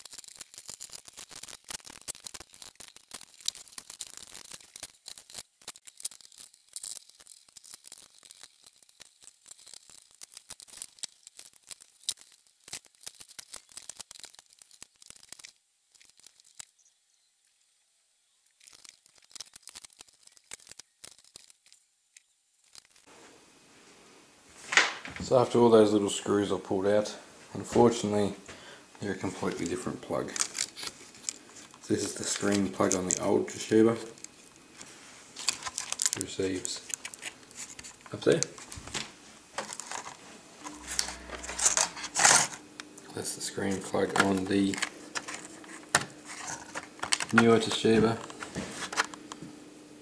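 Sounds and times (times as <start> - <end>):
screws and plastic case clicking: 29.5 - 33.3, 35.4 - 38.7, 39.6 - 42.6, 43.7 - 49.4.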